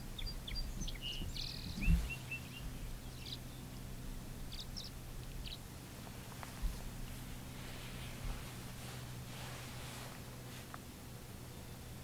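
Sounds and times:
swallows chirping and twittering: 0.0s - 3.8s, 4.4s - 5.7s
low rumble: 0.0s - 11.8s.

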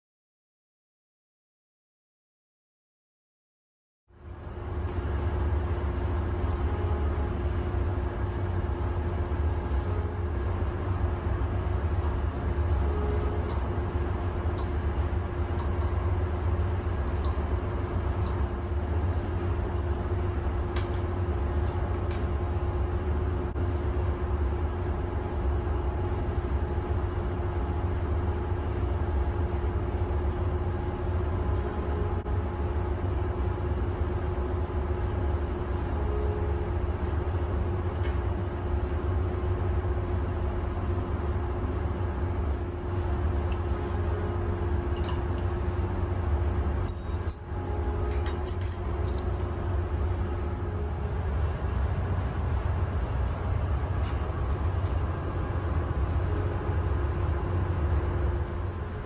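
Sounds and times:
engine room machinery drone: 4.1s - 59.0s
light metal clinks: 46.8s - 47.5s, 48.1s - 49.3s.

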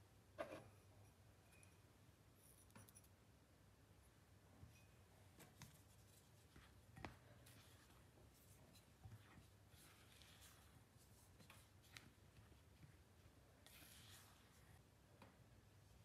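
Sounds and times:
spatula stirring flour in glass bowl: 13.6s - 14.8s.

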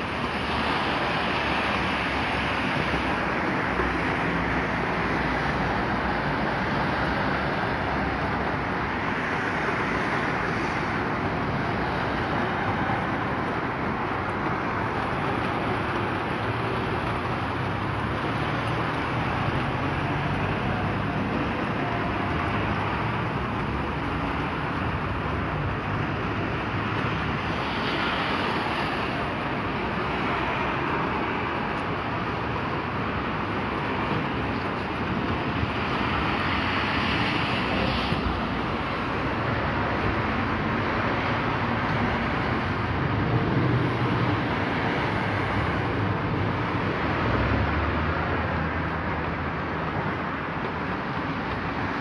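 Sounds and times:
heavy rain and hail: 0.0s - 7.7s, 8.7s - 41.2s.

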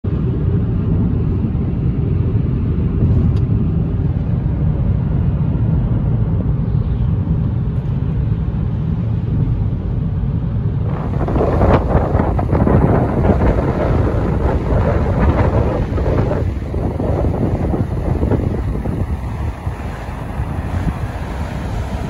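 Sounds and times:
car road and engine rumble: 0.0s - 22.0s
wind buffeting microphone: 0.0s - 22.0s
waterfall rushing: 10.9s - 22.0s.

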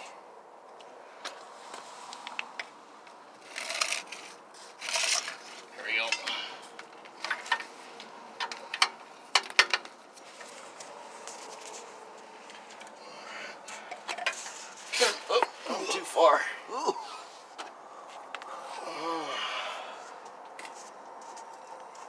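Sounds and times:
sharp clicks and light knocks: 6.1s - 10.0s.

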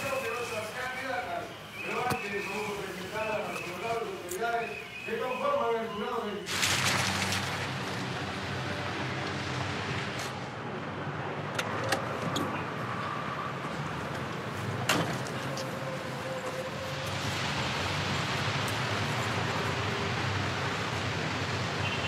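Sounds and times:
outdoor ambience hiss: 0.0s - 10.6s.

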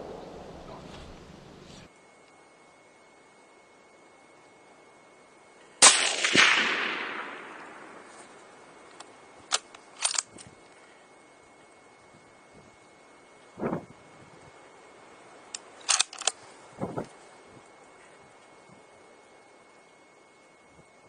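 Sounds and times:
rifle shot with echo: 0.0s - 1.5s, 5.8s - 8.8s
rifle action clicks: 5.8s - 10.5s, 15.5s - 16.4s.

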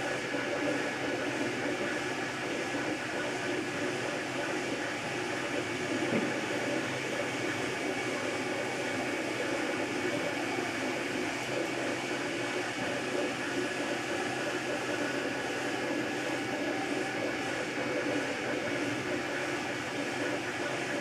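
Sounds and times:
cooling fans whirring: 0.0s - 21.0s.

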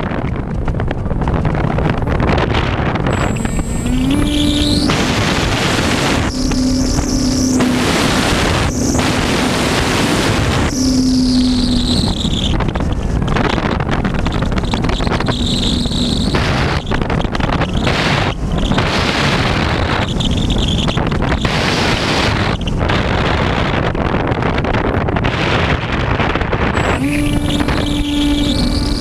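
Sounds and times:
wind rushing on microphone: 0.0s - 29.0s
electric motor and propeller whine: 2.9s - 23.3s, 26.8s - 29.0s.

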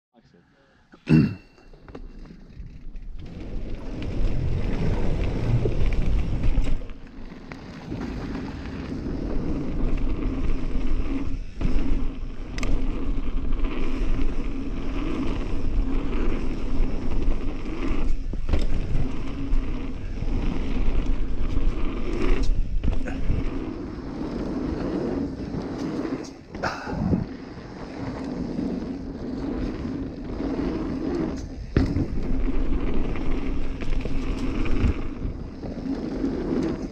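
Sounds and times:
bike knocking and rattling: 1.7s - 36.9s
bike tyres rolling over dirt: 1.7s - 36.9s
wind on microphone: 12.9s - 36.9s.

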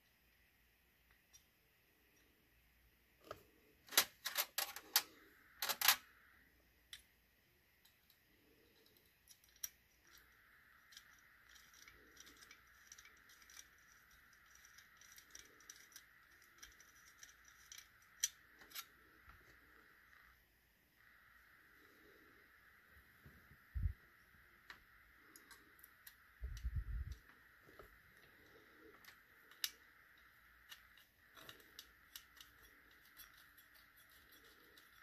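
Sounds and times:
faint steady hiss: 0.0s - 35.0s
small metal parts clicking: 3.9s - 6.1s, 7.8s - 19.0s, 28.2s - 35.0s.

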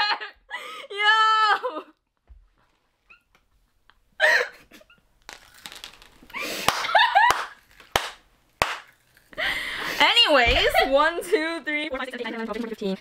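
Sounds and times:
women laughing: 4.2s - 5.0s, 6.4s - 7.6s
sharp smacks: 6.7s - 9.0s.

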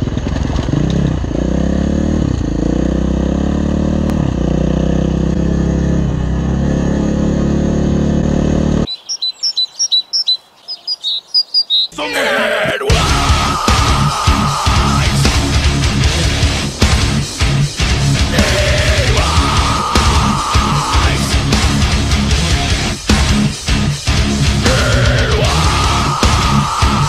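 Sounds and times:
motorcycle engine running: 0.0s - 9.0s, 12.9s - 27.0s
birds chirping: 8.4s - 27.0s
loud rock music with guitar: 12.5s - 27.0s.

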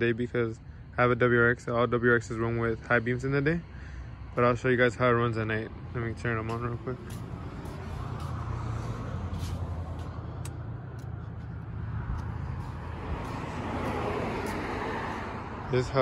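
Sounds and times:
car engine idling: 5.8s - 16.0s.

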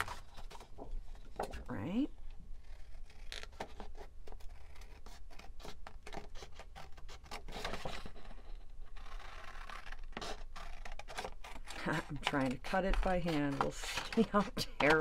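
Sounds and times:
scissors snipping paper: 2.6s - 8.2s, 8.9s - 15.0s
paper rustling: 2.6s - 15.0s.

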